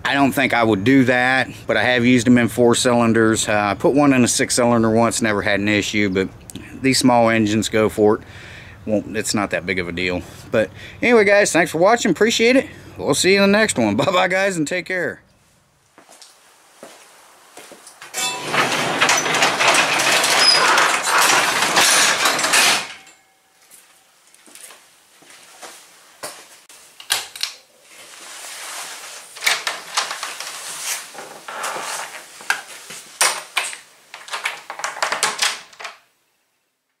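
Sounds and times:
garage door rolling and rattling: 18.2s - 23.2s
scattered knocks and rattles: 18.2s - 23.2s.

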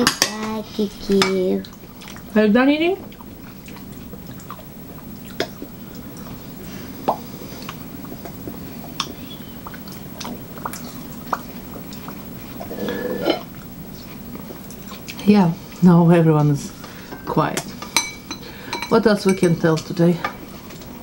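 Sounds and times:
steady low hum: 0.0s - 21.0s
chewing watermelon: 3.0s - 15.8s
dishes and cutlery clicking: 17.6s - 20.4s.

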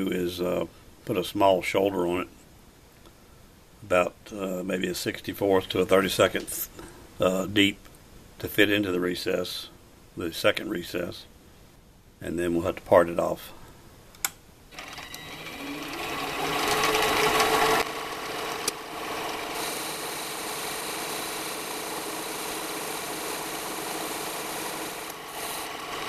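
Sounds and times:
lathe motor humming: 14.8s - 26.0s.

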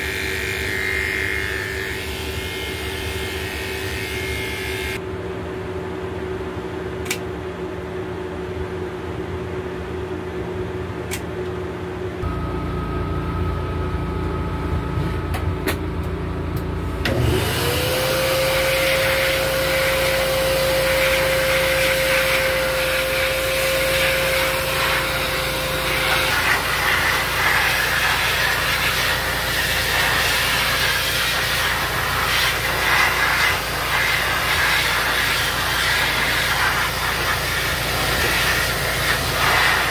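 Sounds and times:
pet dryer blowing air: 0.0s - 5.0s, 16.6s - 39.9s
steady hum: 3.4s - 17.1s.

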